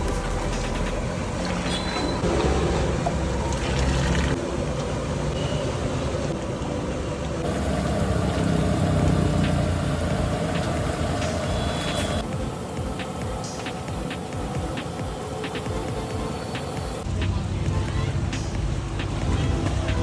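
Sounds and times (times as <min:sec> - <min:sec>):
gas burner rushing: 0:07.4 - 0:17.0.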